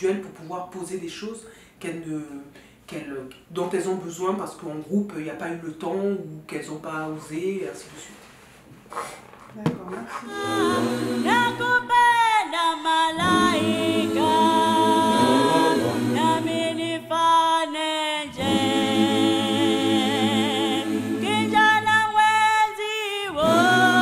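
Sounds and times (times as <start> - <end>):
a cappella voices singing: 10.3 - 24.0.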